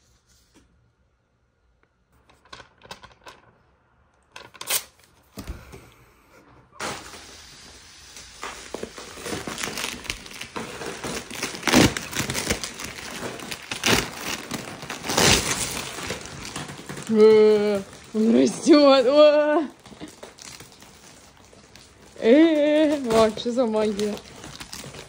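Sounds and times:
packaging crinkling and rustling: 6.8s - 25.0s.

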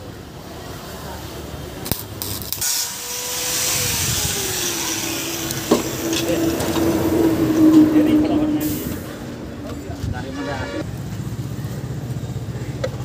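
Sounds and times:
high hiss: 2.5s - 6.8s
motor whine: 2.8s - 8.6s.

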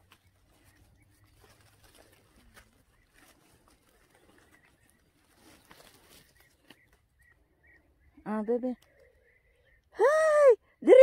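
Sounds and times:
rustling of bramble being handled: 0.0s - 7.2s.

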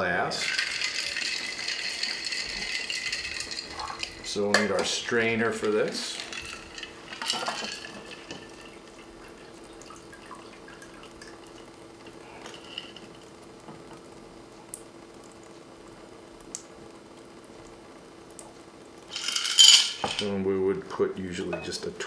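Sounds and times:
liquid trickling into glass: 0.4s - 4.6s, 5.2s - 13.1s.

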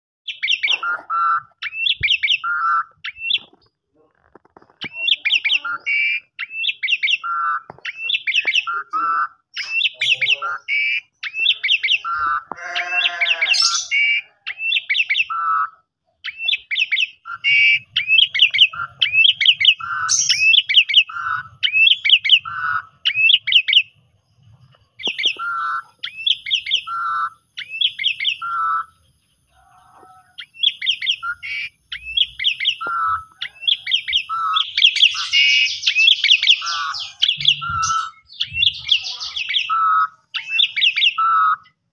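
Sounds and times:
starling singing: 0.2s - 41.9s
long low bird call: 8.3s - 24.0s, 25.0s - 41.8s.

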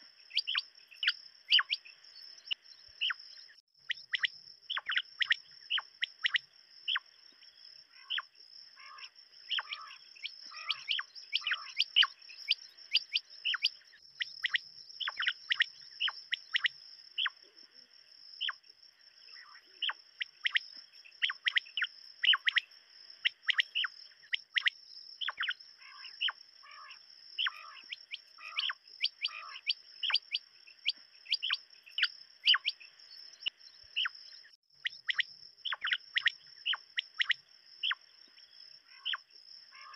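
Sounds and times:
quail calling: 0.0s - 1.8s, 8.8s - 17.4s, 21.2s - 22.6s, 23.2s - 32.8s, 38.9s - 39.9s.

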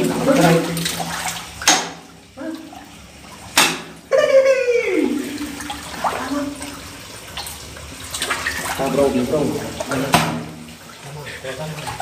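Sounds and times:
water splashes: 0.0s - 12.0s
person calling out long cry: 4.1s - 5.4s.

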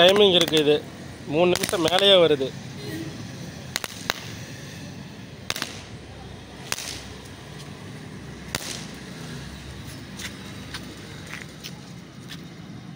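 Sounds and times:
firecrackers popping on concrete: 0.0s - 2.5s, 3.6s - 4.6s, 5.4s - 7.8s, 8.4s - 9.5s.

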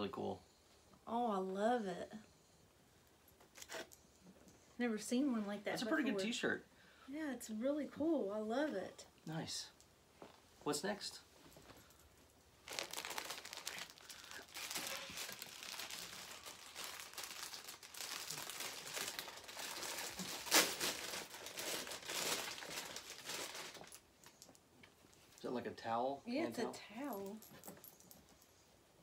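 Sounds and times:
plastic packaging crinkling: 12.6s - 24.6s.

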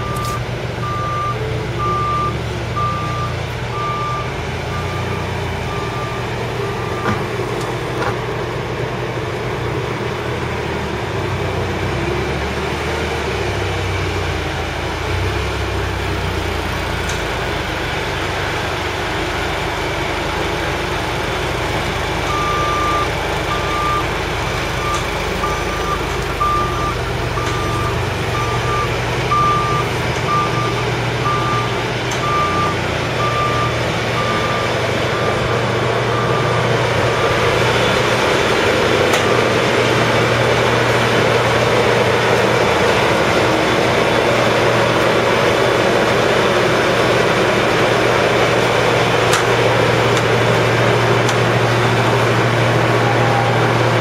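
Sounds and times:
reversing alarm beeping: 0.0s - 7.4s, 22.3s - 37.6s
forklift engine hum: 0.0s - 54.0s.

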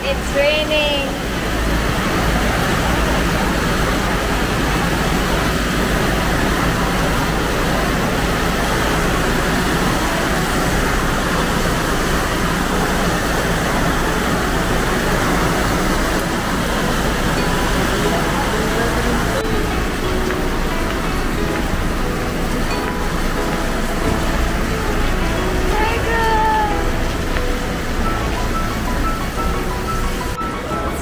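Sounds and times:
rain on a metal roof: 0.0s - 31.0s.

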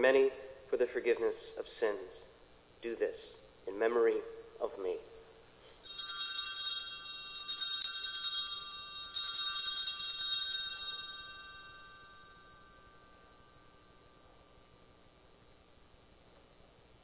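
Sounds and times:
small bells jangling: 5.8s - 14.2s.

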